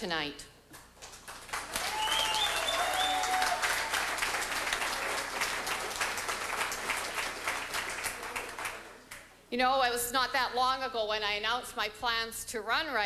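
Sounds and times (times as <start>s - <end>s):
crowd applauding: 1.0s - 9.2s
high-pitched cheer: 1.7s - 5.8s.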